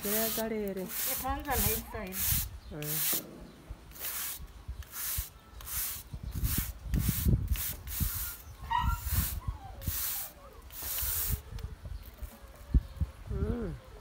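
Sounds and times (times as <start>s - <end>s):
paintbrush strokes swishing: 0.0s - 3.3s, 3.9s - 11.4s.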